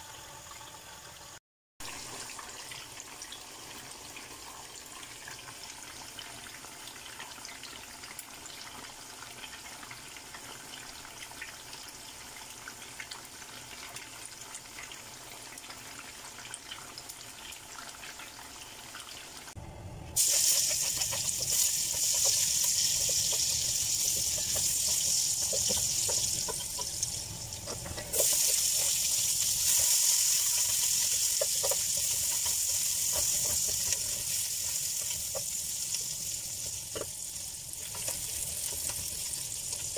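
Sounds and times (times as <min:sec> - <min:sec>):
spring rolls deep-frying in oil: 0:00.0 - 0:19.6, 0:20.2 - 0:39.9
wooden spoon stirring: 0:20.2 - 0:37.2
onions sizzling in a pan: 0:20.2 - 0:39.9.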